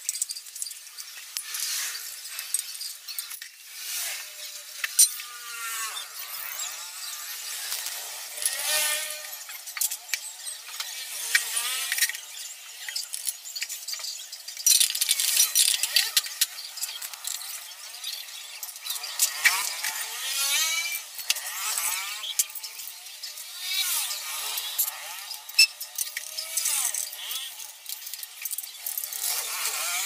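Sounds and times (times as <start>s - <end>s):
metal tools clinking and scraping: 0.0s - 20.0s
metal parts clattering: 7.1s - 19.9s.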